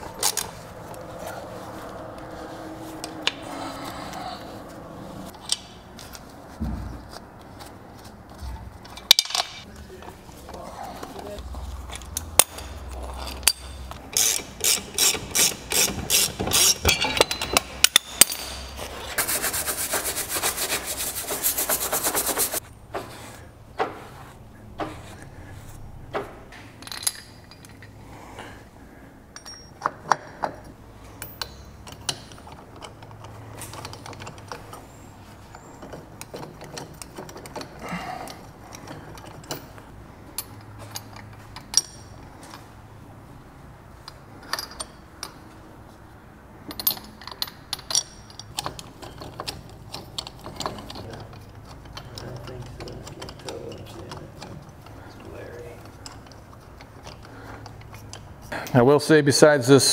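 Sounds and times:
metal parts clinking: 8.8 - 9.7, 11.8 - 18.8, 26.8 - 28.0, 29.3 - 42.7, 44.0 - 45.5, 46.6 - 58.5.

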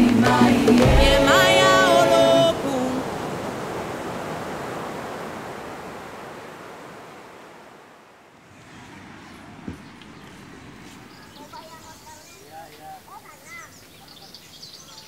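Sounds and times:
ocean surf breaking: 0.0 - 11.5.

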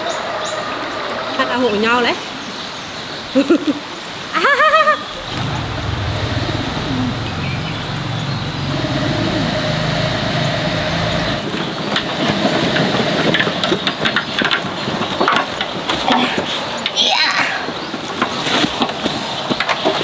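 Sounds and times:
dogs growling: 5.1 - 11.5.

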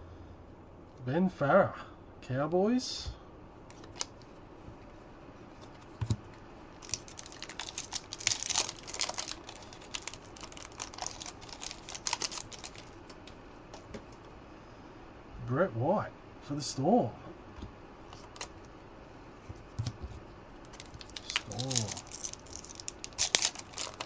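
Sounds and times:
cards clicking and rustling: 3.7 - 4.3, 5.6 - 14.1, 18.2 - 18.5, 20.7 - 24.0.

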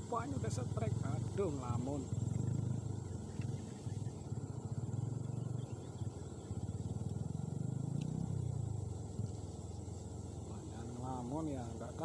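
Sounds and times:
low pulsing rumble: 0.0 - 12.0.

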